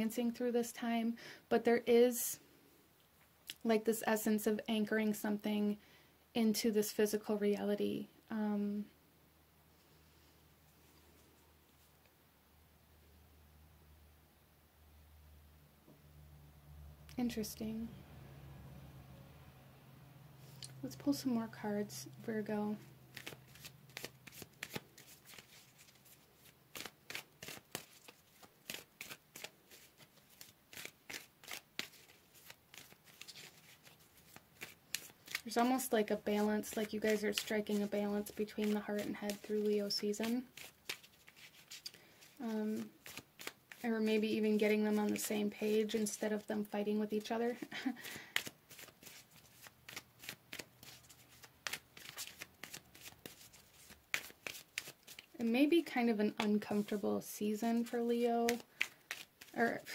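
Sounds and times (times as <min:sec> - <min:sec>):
cards being shuffled: 0:23.1 - 0:57.0, 0:57.7 - 0:59.9.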